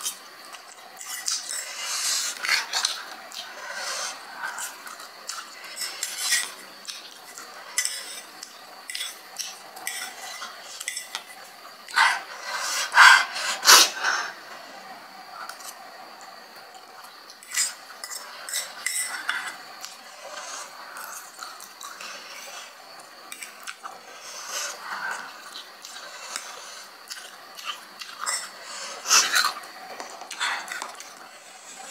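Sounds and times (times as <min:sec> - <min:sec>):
fork clinking against bowl: 0:07.8 - 0:08.2, 0:09.8 - 0:11.4, 0:17.4 - 0:19.5.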